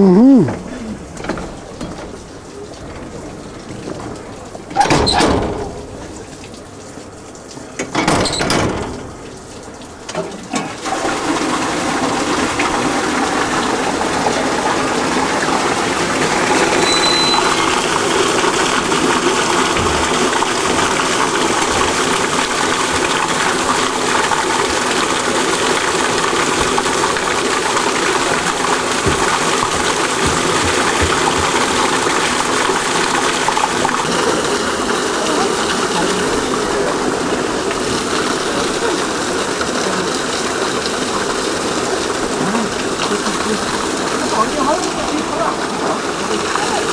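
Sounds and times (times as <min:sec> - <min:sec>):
water gushing into drain: 0:00.3 - 0:46.9
loud knock: 0:29.0 - 0:31.8.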